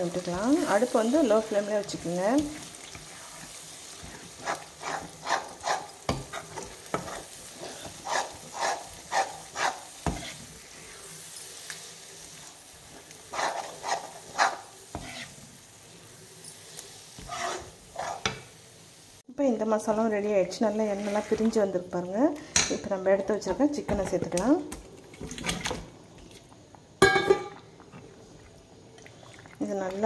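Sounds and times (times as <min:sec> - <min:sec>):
oil sizzling: 0:00.0 - 0:22.2, 0:24.8 - 0:30.0
spatula scraping a pan: 0:02.3 - 0:18.5, 0:20.6 - 0:21.7.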